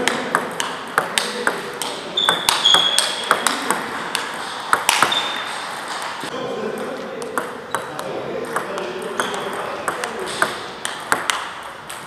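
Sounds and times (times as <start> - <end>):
table tennis ball clicks: 0.0 - 6.2, 7.2 - 12.0
short high squeaks: 2.2 - 3.4, 5.1 - 5.6.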